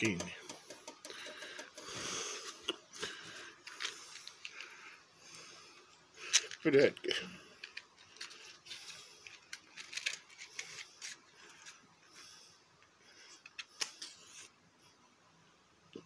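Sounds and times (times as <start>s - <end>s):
matchbox clicks and rattles: 7.6s - 11.8s.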